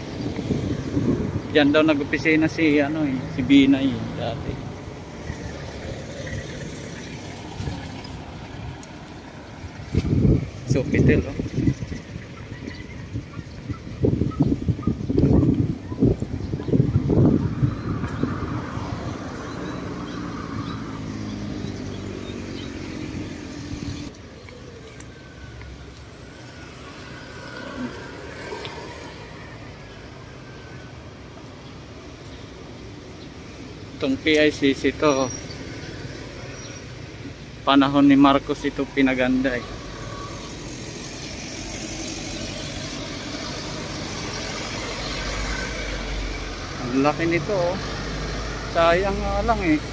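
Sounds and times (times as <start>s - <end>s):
gusty wind noise: 0.0s - 2.5s, 4.4s - 24.1s
road traffic passing: 0.0s - 49.9s.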